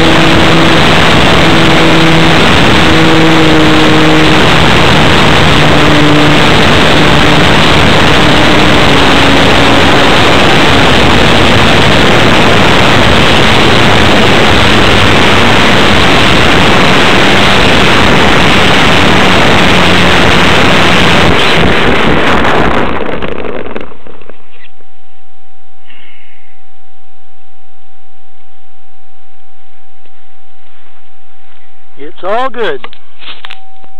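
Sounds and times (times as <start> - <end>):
wind rushing over microphone: 0.0 - 24.8
model airplane engine humming: 0.0 - 26.9.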